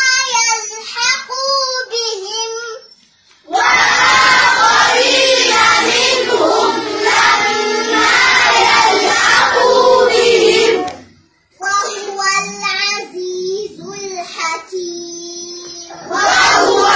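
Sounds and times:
crowd chanting: 3.5s - 11.1s, 15.9s - 16.9s.

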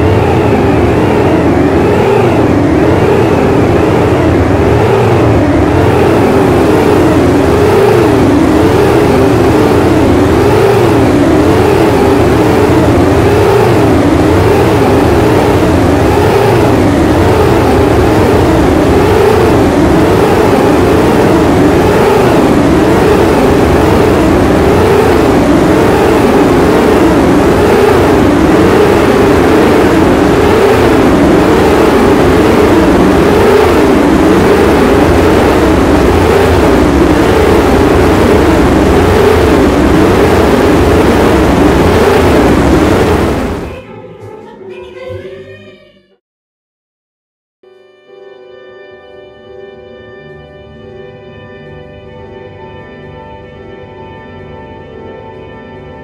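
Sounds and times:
overlapping drone tones: 0.0s - 43.7s
low rumble and hiss: 0.0s - 44.4s.

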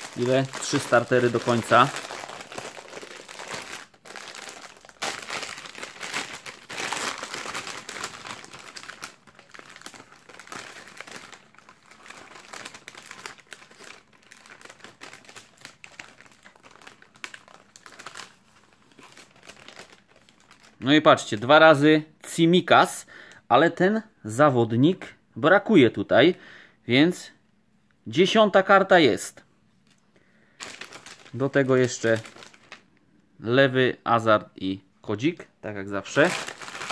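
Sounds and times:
foil packaging crinkling: 0.0s - 21.4s, 30.5s - 32.9s, 36.0s - 36.9s.

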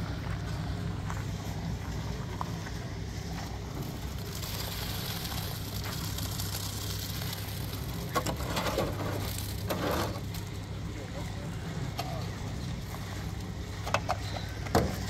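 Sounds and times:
low machine hum: 0.0s - 15.0s
concrete scraping from wheelbarrow: 3.9s - 10.5s.

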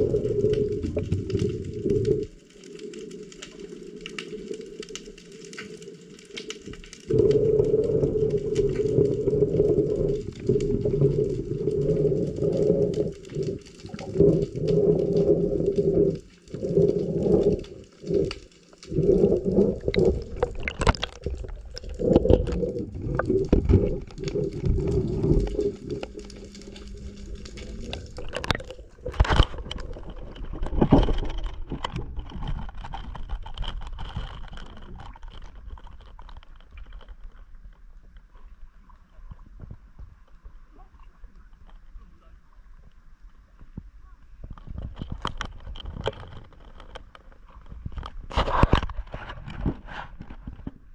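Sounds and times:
water splashing and sloshing: 0.0s - 50.9s
loud low underwater hum: 7.1s - 34.7s.

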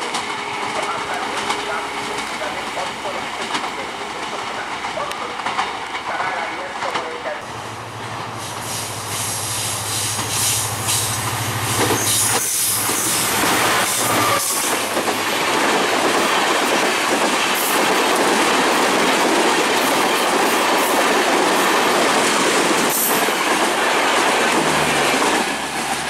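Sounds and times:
clacks over rail joints: 0.0s - 7.4s, 11.8s - 26.0s
diesel locomotive engine drone: 0.0s - 17.6s
train wheels rushing on rail: 0.0s - 26.0s.

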